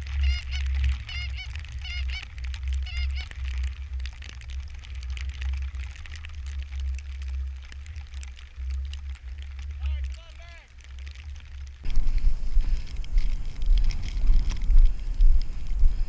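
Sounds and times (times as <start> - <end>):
wind rumble on microphone: 0.0 - 16.0
goose honks: 0.1 - 3.3.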